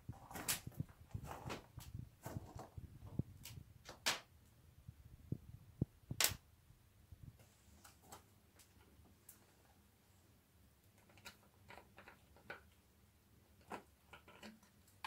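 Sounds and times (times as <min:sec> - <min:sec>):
rustling: 0:00.0 - 0:04.0.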